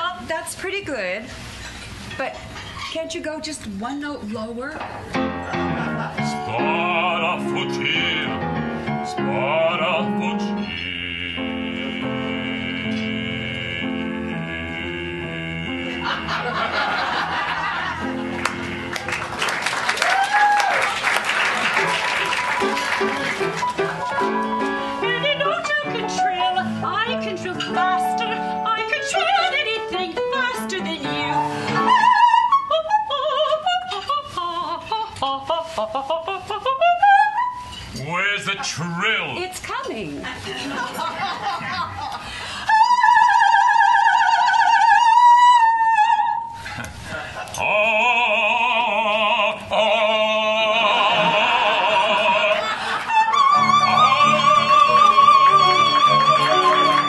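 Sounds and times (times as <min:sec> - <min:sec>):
piano accompaniment: 0:04.8 - 0:19.9, 0:21.0 - 0:33.0, 0:49.1 - 0:57.0
operatic soprano singing: 0:06.1 - 0:16.9, 0:24.2 - 0:38.4, 0:42.6 - 0:46.6, 0:47.6 - 0:57.0.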